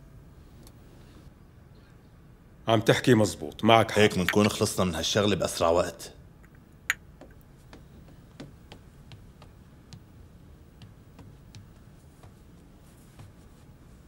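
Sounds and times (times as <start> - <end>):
high heels clicking on wood: 6.9 - 12.6.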